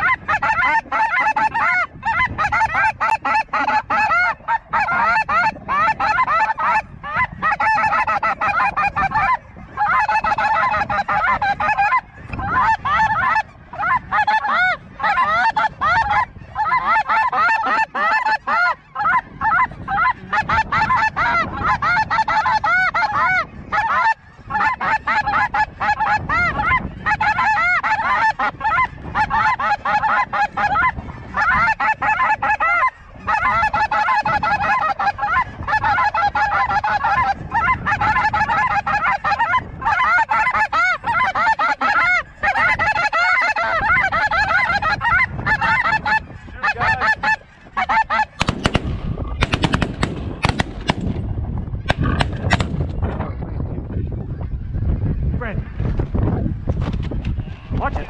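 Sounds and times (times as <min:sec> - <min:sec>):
geese honking: 0:00.0 - 0:51.2
shotgun shots: 0:48.4 - 0:51.2, 0:51.9 - 0:52.8.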